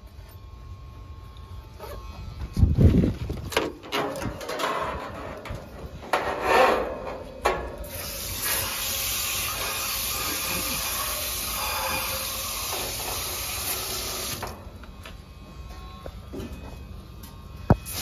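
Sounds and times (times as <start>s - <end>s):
hose nozzle spraying water: 7.8s - 14.5s, 17.8s - 18.0s.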